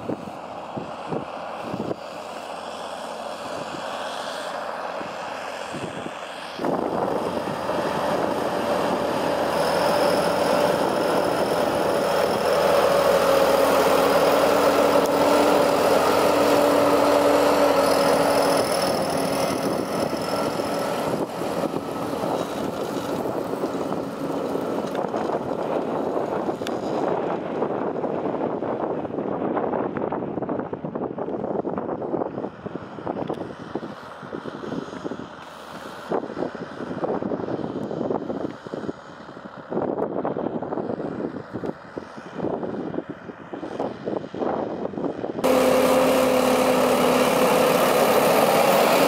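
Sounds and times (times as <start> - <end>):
steady whine: 0.0 - 27.0, 45.4 - 49.0
tractor diesel engine under load: 0.0 - 49.0.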